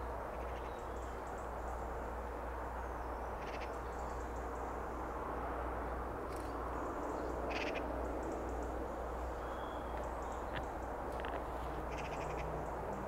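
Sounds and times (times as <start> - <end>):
short high bird calls: 11.9 - 12.5.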